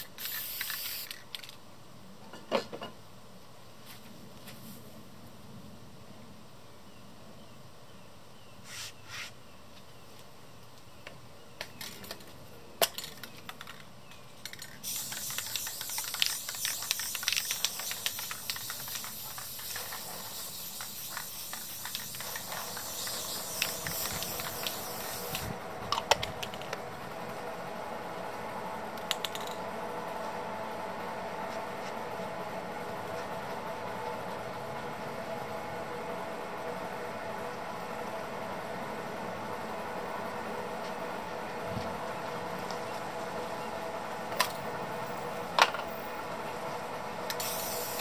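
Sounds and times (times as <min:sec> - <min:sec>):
aerosol spray can hissing: 0:00.0 - 0:01.2, 0:14.8 - 0:25.5, 0:47.3 - 0:48.0
leaf blower engine hum: 0:14.9 - 0:29.0.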